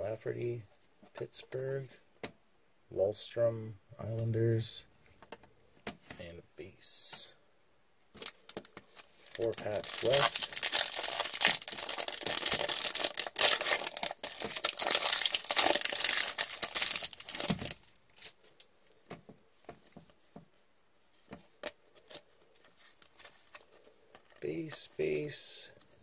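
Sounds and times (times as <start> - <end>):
foil wrapper crinkling: 8.2 - 18.4.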